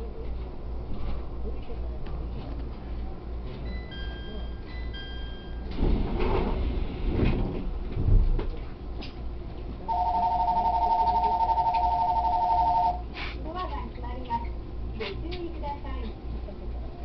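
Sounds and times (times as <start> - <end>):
train doors sliding: 5.6 - 8.6.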